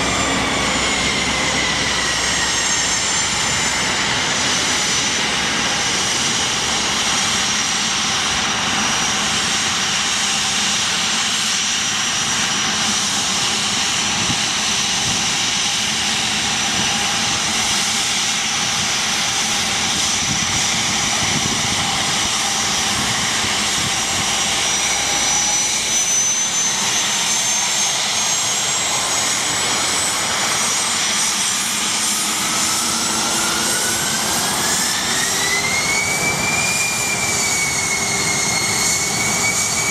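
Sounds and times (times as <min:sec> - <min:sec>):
jet engines whining: 0:00.0 - 0:39.9.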